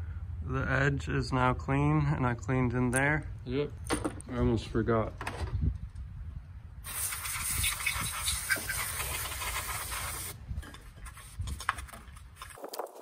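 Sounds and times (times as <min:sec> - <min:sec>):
spray hissing: 0:06.8 - 0:10.4.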